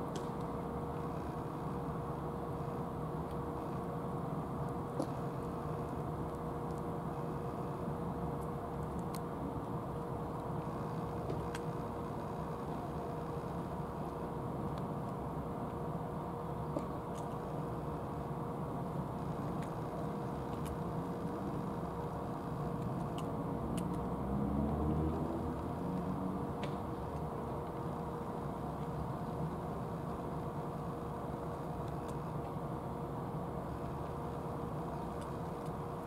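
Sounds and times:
faint hum: 0:00.0 - 0:36.0
low outdoor rumble: 0:00.0 - 0:36.0.

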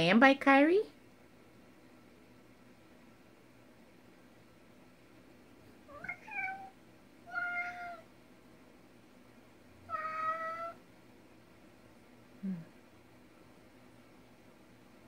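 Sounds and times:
cat meowing: 0:05.9 - 0:08.1, 0:09.9 - 0:10.8.

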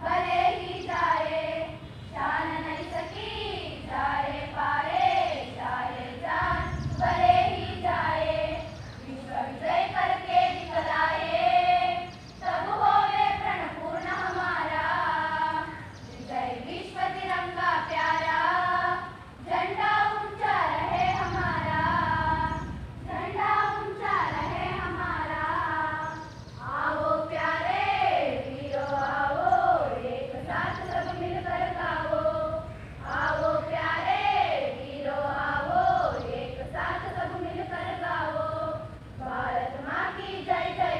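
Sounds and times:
children's choir singing: 0:00.0 - 0:40.9.

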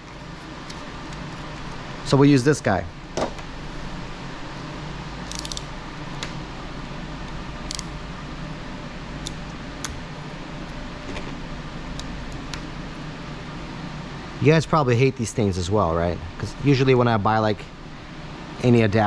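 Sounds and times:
steady low hum: 0:00.0 - 0:19.0
small parts clicking and rattling: 0:05.3 - 0:05.7, 0:07.7 - 0:07.9.

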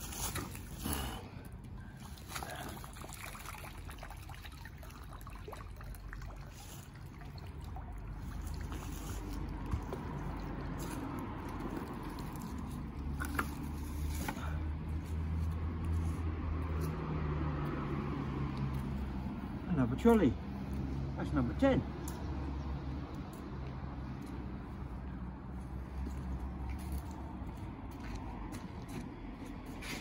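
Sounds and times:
water trickling and sloshing: 0:00.0 - 0:15.7
traffic hum: 0:00.0 - 0:30.0.

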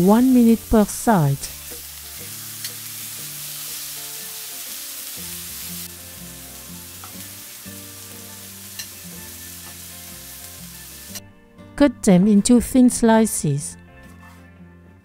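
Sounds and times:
light background music: 0:00.0 - 0:15.0
meat sizzling in a frying pan: 0:00.2 - 0:11.2.

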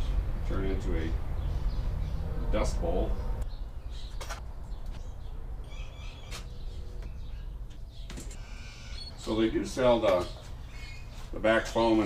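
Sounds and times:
low outdoor rumble: 0:00.0 - 0:11.5
faint bird chirps: 0:03.4 - 0:09.4.

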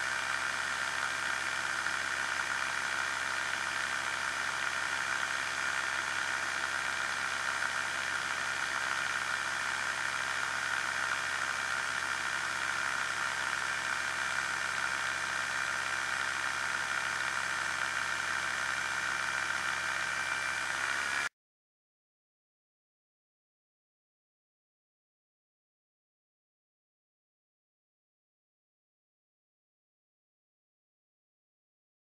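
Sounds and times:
aircraft engine and propeller: 0:00.0 - 0:21.3.

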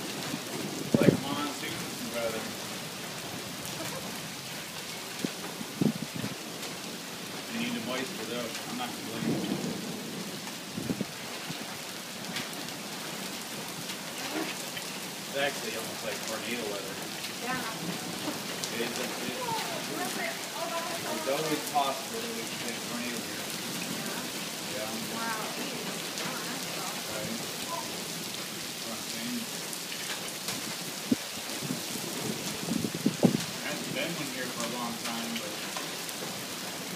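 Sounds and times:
thunder rumble: 0:00.0 - 0:13.3, 0:30.5 - 0:35.1
rain falling: 0:00.0 - 0:36.9
sharp thunder cracks: 0:00.6 - 0:01.9, 0:08.8 - 0:11.6.

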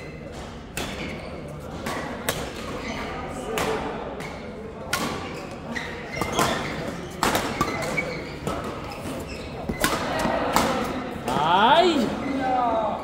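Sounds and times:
racket hitting shuttlecock: 0:00.7 - 0:02.8, 0:03.5 - 0:05.4, 0:06.1 - 0:08.8, 0:09.6 - 0:11.0.

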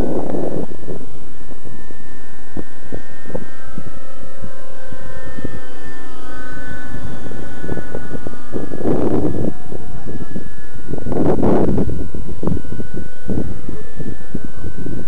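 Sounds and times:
model helicopter engine whine: 0:00.0 - 0:15.0
wind buffeting microphone: 0:00.0 - 0:15.0.

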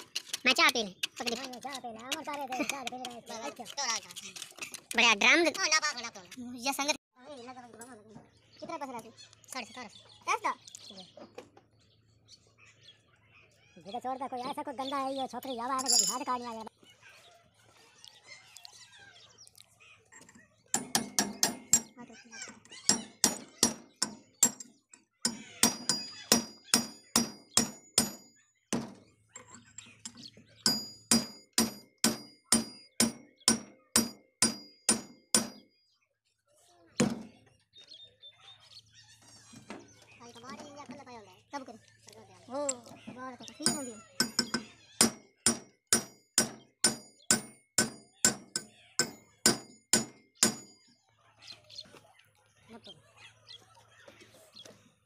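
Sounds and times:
hammer striking steel punch: 0:20.8 - 0:21.9, 0:25.3 - 0:29.0, 0:30.7 - 0:35.6, 0:43.7 - 0:50.7
hammer striking steel shaft: 0:43.7 - 0:50.7.

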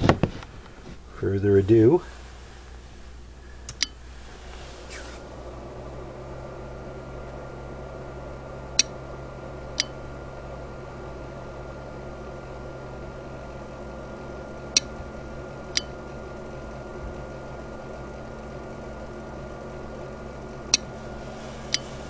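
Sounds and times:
steady hum: 0:00.6 - 0:22.0.

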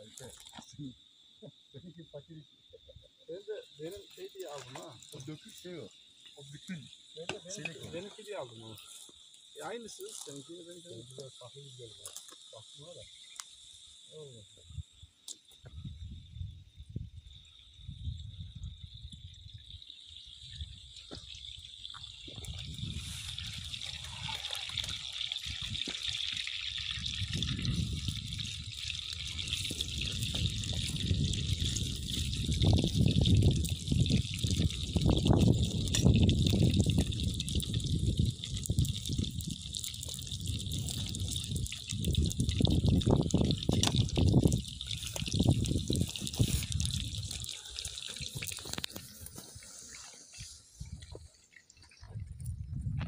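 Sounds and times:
sausage sizzling in frying pan: 0:21.5 - 0:50.0.

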